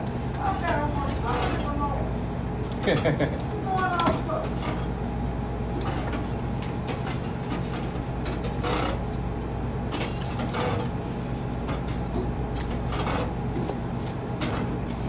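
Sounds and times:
kitchen equipment hum: 0.0 - 15.0.

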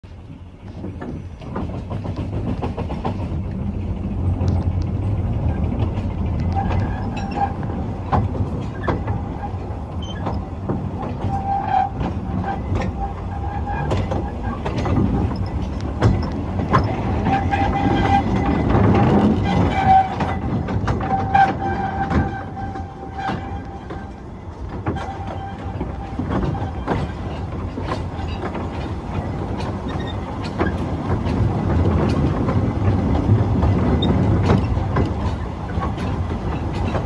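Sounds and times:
diesel locomotive rumble: 0.0 - 37.0
wheel clicks over rails: 0.7 - 37.0
thin wheel squeal: 6.5 - 7.8, 8.6 - 10.4, 11.2 - 24.2.

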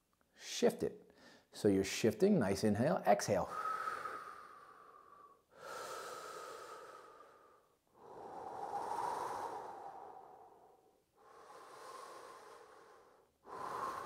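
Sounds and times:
man breathing slowly: 1.1 - 1.5, 3.5 - 14.0.

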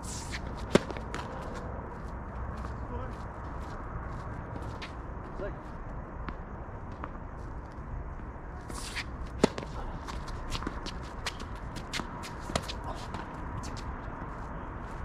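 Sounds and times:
racket striking tennis ball: 0.0 - 1.4, 8.7 - 12.8
tennis shoes scuffing on court: 0.0 - 7.6, 8.6 - 15.0.

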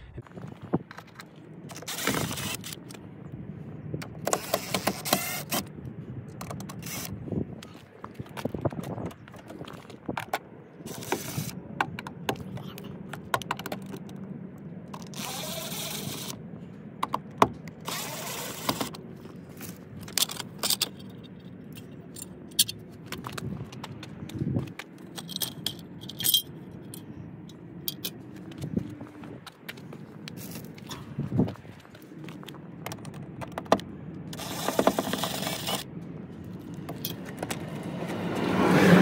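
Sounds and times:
cordless drill backing out screws: 4.2 - 5.7, 17.8 - 19.0
metal screws clinking: 25.0 - 27.1, 27.8 - 28.2.

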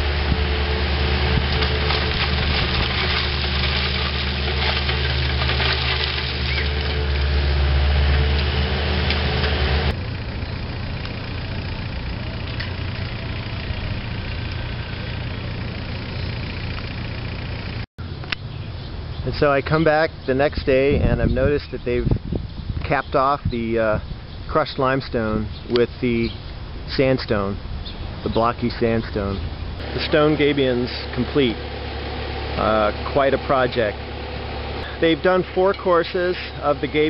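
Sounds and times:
excavator diesel engine running: 0.0 - 17.9, 28.8 - 37.0
bucket scraping crushed stone: 0.5 - 9.6.

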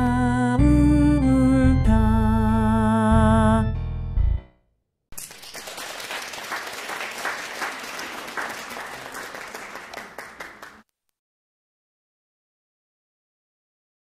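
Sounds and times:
audience applause: 5.2 - 10.8.

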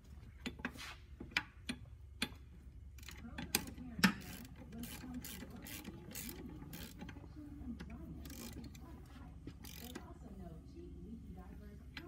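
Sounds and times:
socket ratchet clicking: 3.0 - 7.2, 8.2 - 8.8, 9.6 - 10.1.

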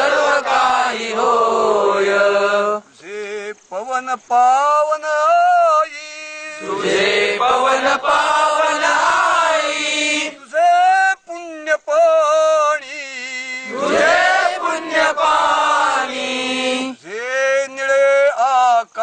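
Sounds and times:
men chanting a song: 0.0 - 3.5, 5.2 - 10.8, 12.1 - 19.0
man singing alone: 2.6 - 6.8, 10.3 - 13.8, 16.8 - 19.0.

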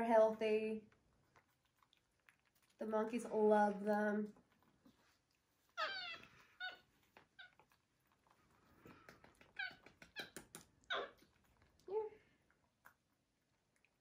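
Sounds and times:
monkeys squeaking: 9.4 - 11.2.

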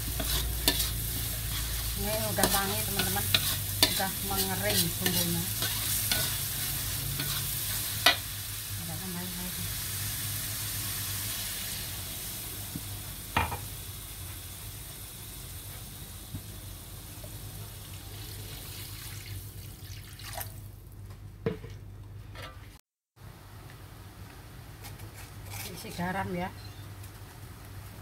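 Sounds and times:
paste sizzling in a wok: 0.0 - 19.5.

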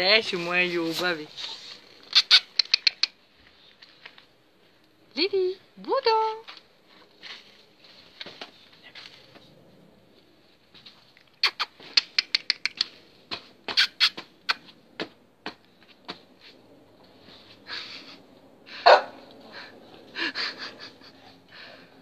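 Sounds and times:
dogs scuffling in snow: 0.0 - 1.8
dogs snapping jaws: 11.3 - 16.2.

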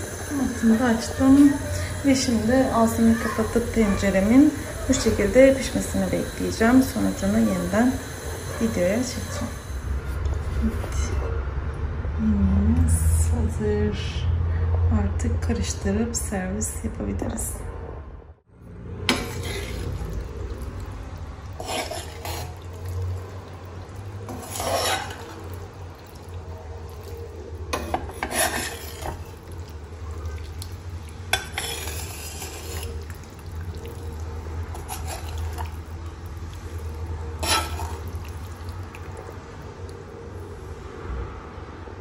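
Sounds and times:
spoon stirring wet stew: 0.0 - 11.3, 19.0 - 40.6
spoon scraping and clinking on pan: 19.1 - 19.9, 21.6 - 22.7, 24.3 - 25.4, 27.7 - 29.4, 31.3 - 33.0, 37.4 - 38.1.

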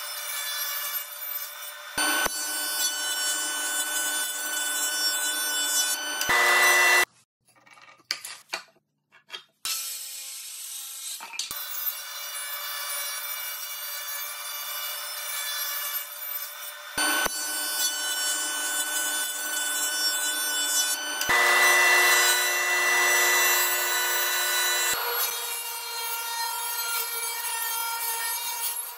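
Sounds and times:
jointer planing board: 2.0 - 7.1, 17.0 - 28.8.

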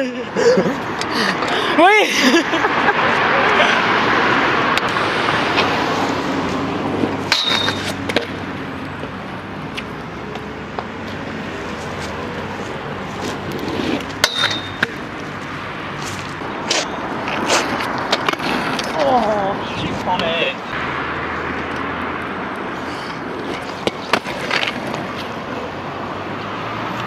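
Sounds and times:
road traffic noise: 0.0 - 27.0
scooter hitting metal handrail: 7.3 - 8.3, 14.2 - 15.0.

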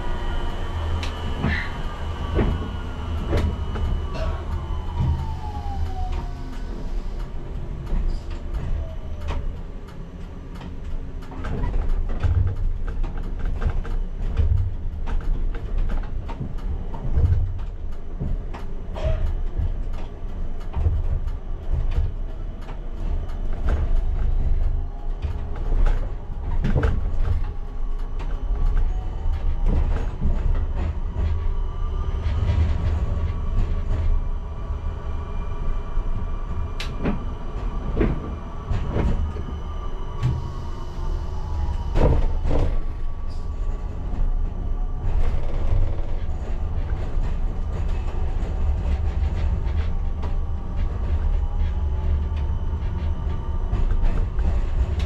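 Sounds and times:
traction motors whining: 0.0 - 11.1
tram rumbling along track: 0.0 - 55.0.

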